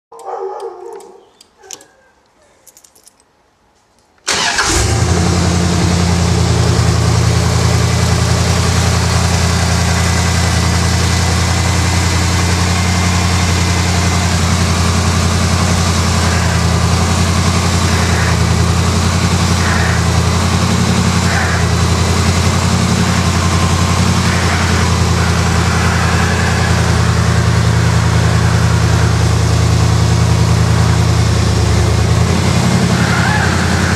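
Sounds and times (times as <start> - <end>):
ignition key clicks: 0.2 - 1.9
car engine starting and idling: 4.3 - 33.9.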